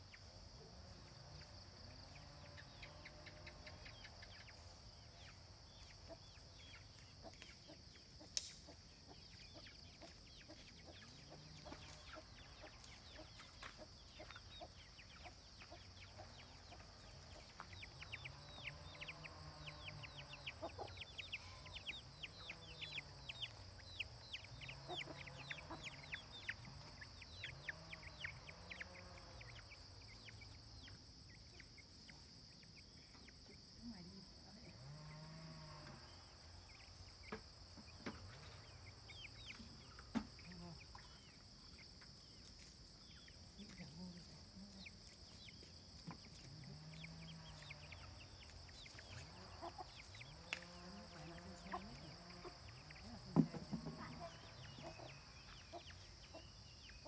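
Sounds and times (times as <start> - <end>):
chickens clucking: 0.0 - 57.0
crickets droning: 0.0 - 57.0
chicks cheeping: 1.4 - 34.6, 36.1 - 57.0.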